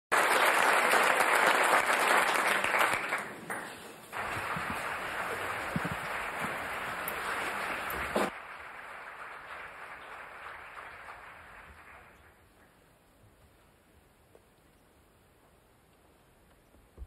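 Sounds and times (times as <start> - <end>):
audience applauding: 0.1 - 3.5, 4.1 - 12.7.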